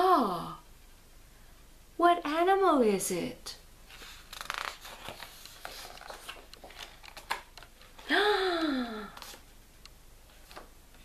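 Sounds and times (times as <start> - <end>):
book pages turning: 3.9 - 8.1, 9.1 - 9.5, 10.3 - 11.0.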